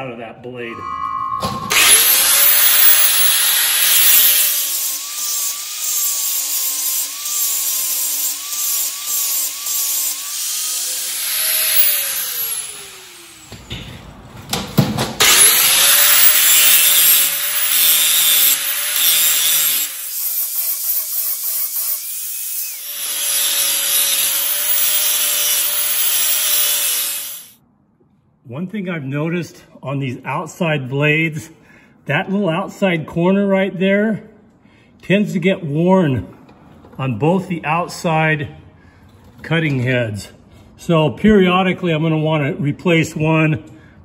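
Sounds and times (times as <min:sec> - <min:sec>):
angle grinder grinding steel: 0:01.6 - 0:13.5, 0:15.2 - 0:27.6.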